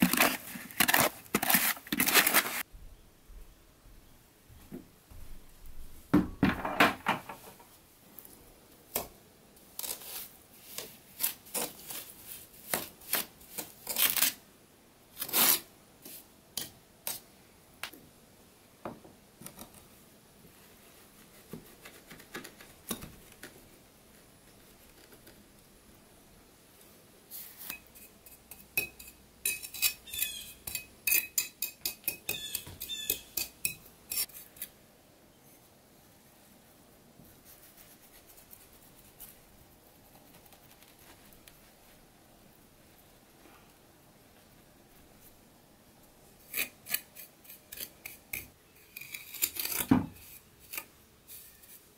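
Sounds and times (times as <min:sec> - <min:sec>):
metal tools scraping on stone: 0:27.6 - 0:34.4.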